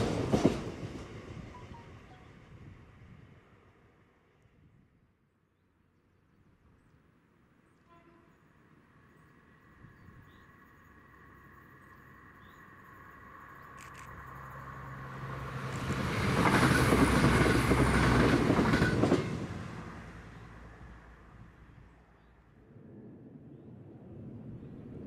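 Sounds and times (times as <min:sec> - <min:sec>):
train wheels rumbling on rails: 0:00.0 - 0:03.0, 0:14.0 - 0:21.6.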